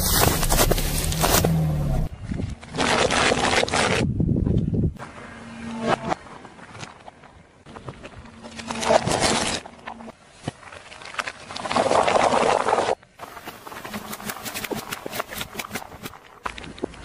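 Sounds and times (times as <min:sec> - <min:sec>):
car tyre crushing objects: 0:00.0 - 0:04.1.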